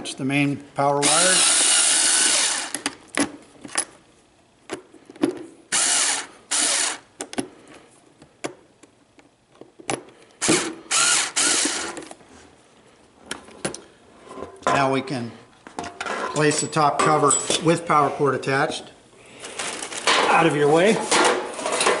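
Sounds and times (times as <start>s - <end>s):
electric screwdriver whirring: 1.0s - 2.8s, 5.7s - 7.1s, 10.4s - 12.0s.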